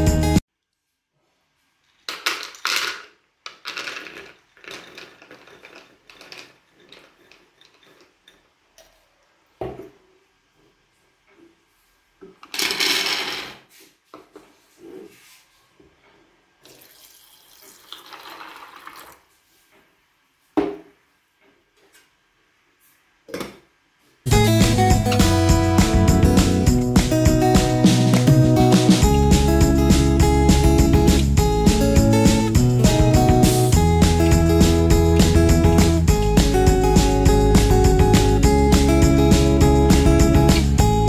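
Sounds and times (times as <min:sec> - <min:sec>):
almonds rattling in plastic cup: 0:02.1 - 0:08.0
water splashing into pot: 0:16.6 - 0:19.2.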